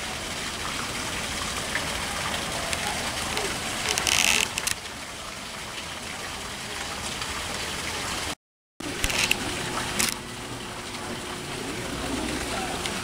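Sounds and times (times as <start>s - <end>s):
water hissing: 1.0s - 4.8s.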